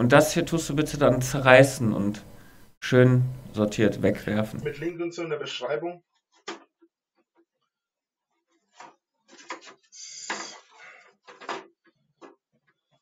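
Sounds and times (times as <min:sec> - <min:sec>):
plastic parts knocking and clattering: 0:08.7 - 0:13.0.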